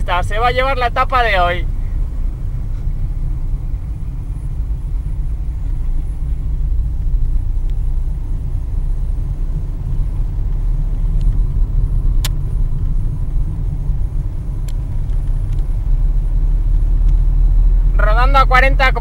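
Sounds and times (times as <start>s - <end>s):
car engine and tyre rumble: 0.0s - 19.0s
sharp click: 12.2s - 12.5s.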